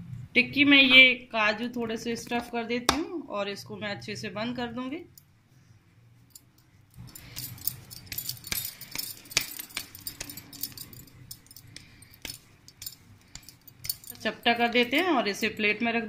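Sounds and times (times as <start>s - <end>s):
bangles clinking: 6.2s - 15.6s.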